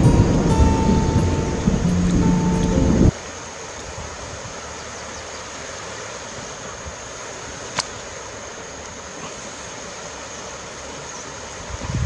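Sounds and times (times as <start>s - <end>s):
river water rushing over rapids: 0.0s - 12.0s.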